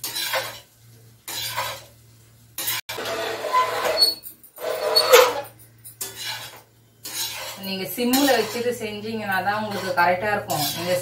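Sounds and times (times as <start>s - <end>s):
ladle scraping rice in a wok: 0.0s - 1.9s, 6.0s - 8.8s, 9.5s - 11.0s
metallic squeaks and clinks: 3.5s - 6.5s.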